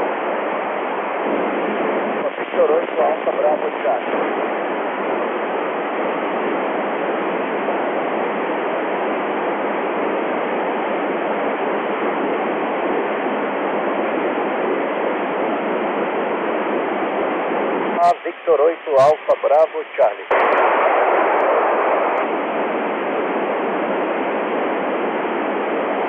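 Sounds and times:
radio receiver hiss: 0:00.0 - 0:26.0.

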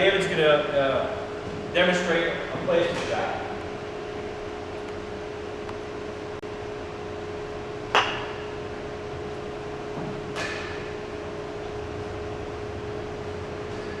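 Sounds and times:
mallet striking ball: 0:07.9 - 0:08.5.

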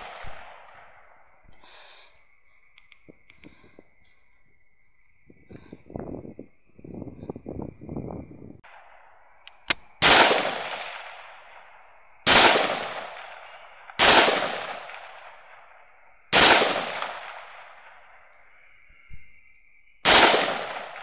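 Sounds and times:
rifle shots echoing: 0:00.0 - 0:01.1, 0:08.7 - 0:18.2, 0:20.0 - 0:21.0.

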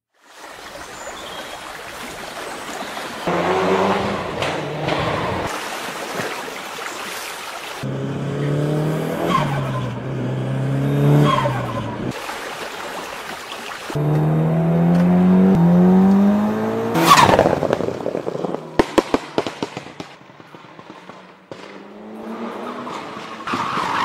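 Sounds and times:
car engine: 0:03.2 - 0:05.5, 0:07.8 - 0:12.2, 0:13.9 - 0:24.0.

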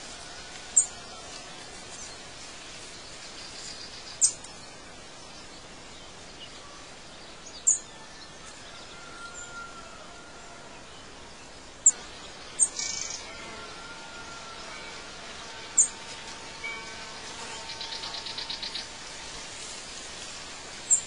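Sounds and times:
steady background hiss: 0:00.0 - 0:21.0
birds chirping: 0:00.7 - 0:09.7, 0:10.4 - 0:19.9.

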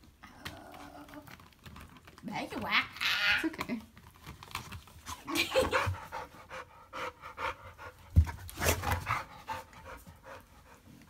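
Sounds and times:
plastic clicks and rustles: 0:00.0 - 0:02.7, 0:03.4 - 0:05.2
dog panting and snuffling: 0:04.9 - 0:11.0.

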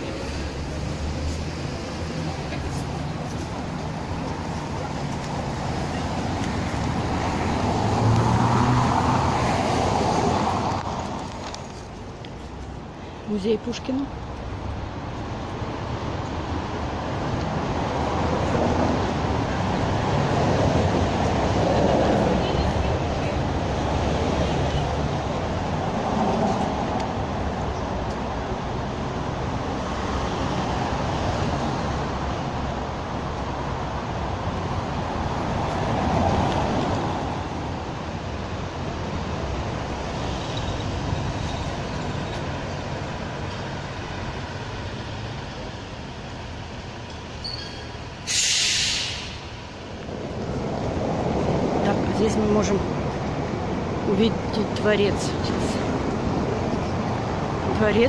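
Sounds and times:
vehicles passing on cobblestones: 0:00.0 - 0:58.0
short sharp hiss: 0:48.2 - 0:49.5.

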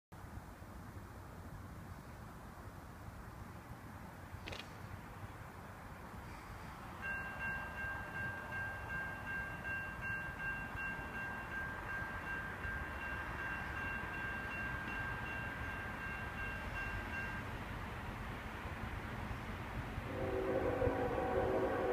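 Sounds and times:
railroad warning tones: 0:06.1 - 0:21.9.

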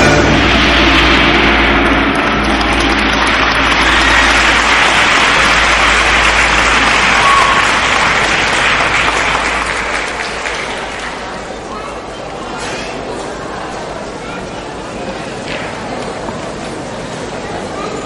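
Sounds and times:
audience applauding: 0:01.8 - 0:11.7.

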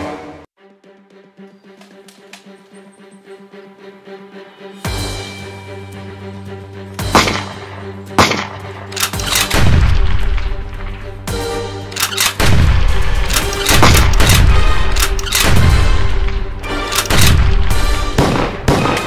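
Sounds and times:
dramatic soundtrack music: 0:00.0 - 0:19.0
gunshots: 0:07.1 - 0:10.6, 0:12.0 - 0:19.0
rapid gunfire volleys with booms: 0:17.0 - 0:19.0.

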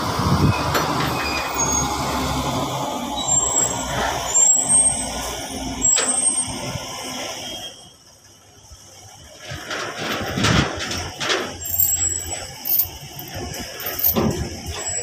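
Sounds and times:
truck engine idling: 0:10.8 - 0:15.0
high squeaks: 0:11.5 - 0:15.0.

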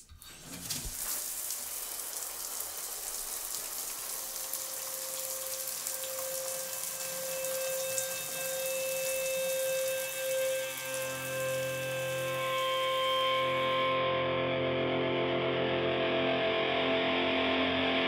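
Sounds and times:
held musical tone: 0:04.4 - 0:14.0.

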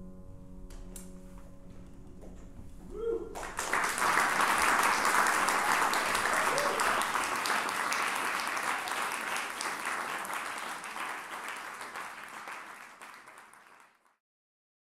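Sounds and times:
audience applauding: 0:02.9 - 0:14.2.

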